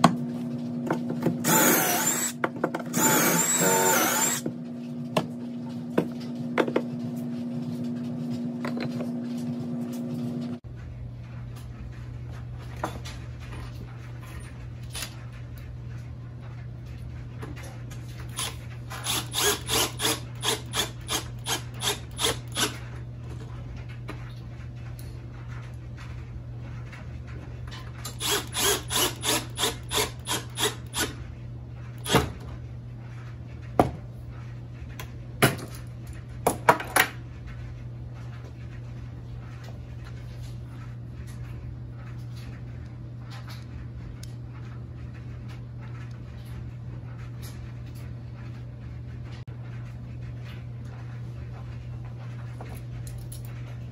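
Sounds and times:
cordless drill driving screws: 1.4s - 4.4s, 18.4s - 22.8s, 28.2s - 31.1s.

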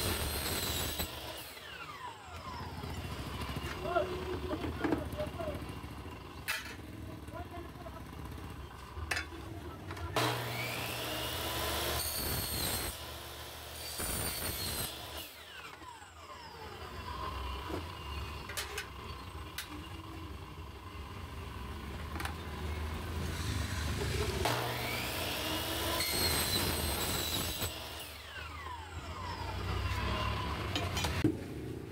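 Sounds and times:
miter saw cutting metal: 0.0s - 5.4s, 10.1s - 20.2s, 23.0s - 31.2s.

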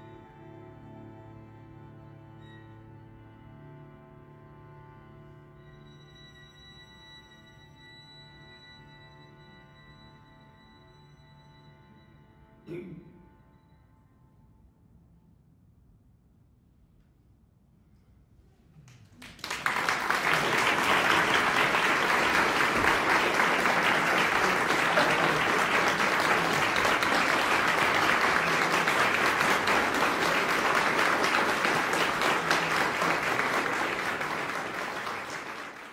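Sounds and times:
audience applauding: 18.8s - 35.9s.

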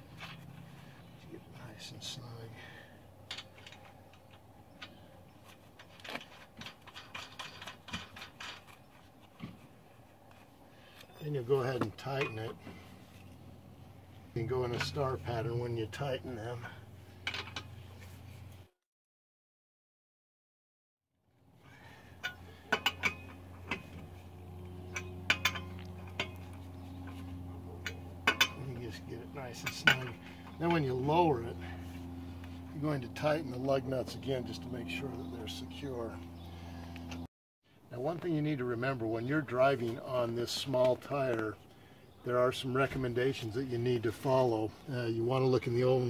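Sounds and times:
steady low hum: 0.0s - 18.7s, 21.4s - 46.0s
lug nuts clicking and scraping: 3.2s - 13.4s, 17.1s - 18.2s, 22.0s - 30.6s
wrench clinking on lug nuts: 22.2s - 23.9s, 24.9s - 26.4s, 27.8s - 28.7s.

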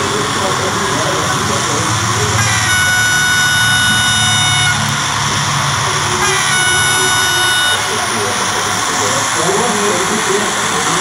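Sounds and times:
diesel engine hum: 0.0s - 11.0s
model locomotive horn blasts: 2.3s - 8.5s.

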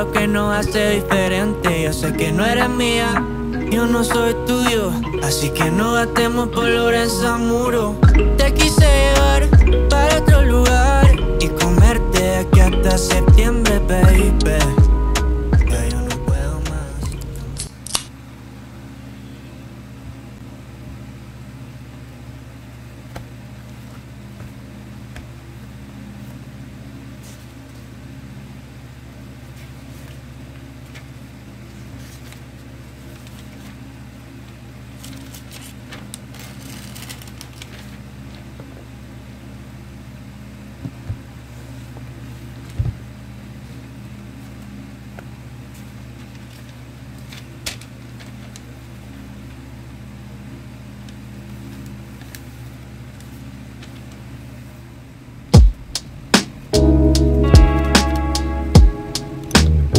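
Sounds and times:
low machine hum: 0.0s - 59.9s
paper pad rustling: 30.8s - 34.0s, 34.9s - 38.6s, 45.6s - 49.0s, 51.4s - 54.8s.

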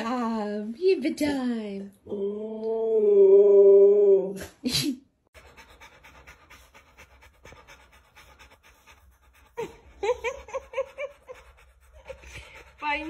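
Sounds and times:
dog panting: 5.3s - 13.0s.

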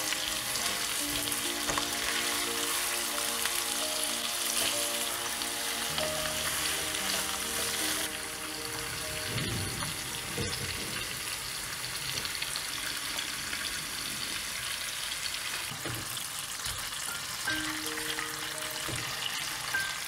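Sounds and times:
light background music: 0.0s - 11.6s, 17.1s - 20.0s
food sizzling in oil: 0.0s - 20.0s.

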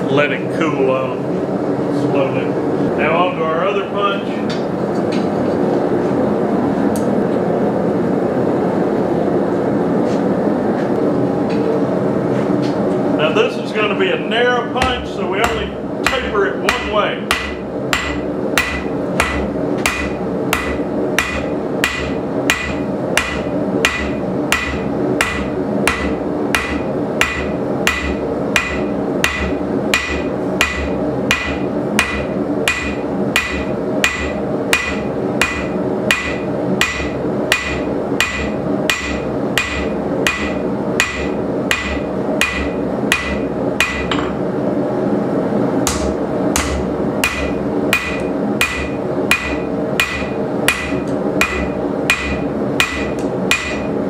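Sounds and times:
steady hum: 0.0s - 54.0s
hammer striking steel on anvil: 14.8s - 44.4s, 45.9s - 54.0s.

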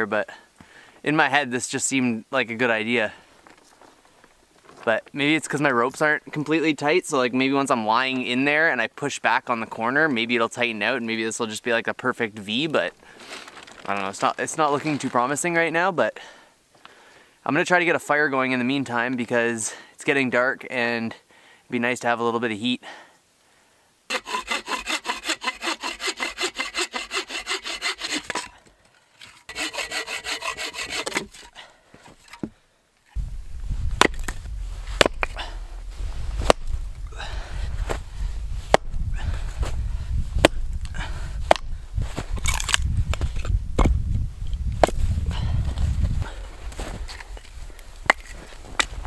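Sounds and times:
hand saw cutting wood: 24.1s - 28.6s, 29.2s - 31.6s
hatchet splitting wood: 24.1s - 28.6s, 29.5s - 31.5s, 34.0s - 34.4s, 35.0s - 35.4s, 36.4s - 36.7s, 40.4s - 40.6s
low rumble: 33.2s - 45.9s.

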